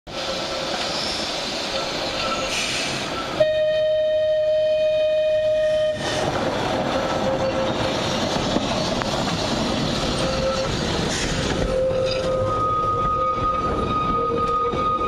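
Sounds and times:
rushing noise of approaching tram: 0.1s - 15.0s
tram horn: 3.4s - 8.0s, 10.1s - 15.0s.

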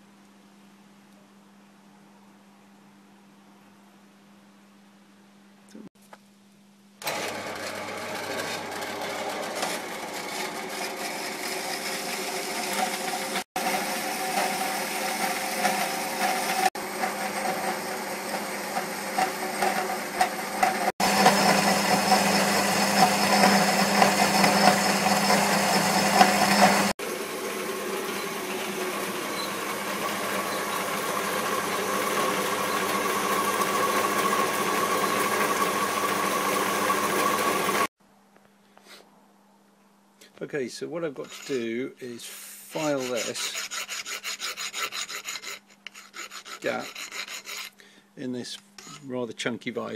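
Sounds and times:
band saw cutting metal bar: 7.0s - 27.0s, 27.6s - 37.9s, 41.2s - 41.8s, 42.7s - 47.7s, 48.8s - 49.1s.

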